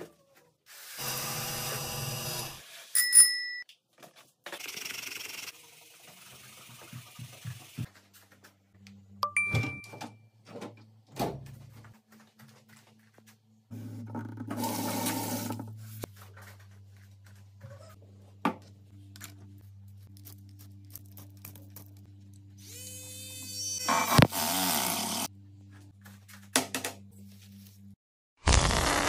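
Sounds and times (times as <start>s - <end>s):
short ding: 9.2s - 10.2s.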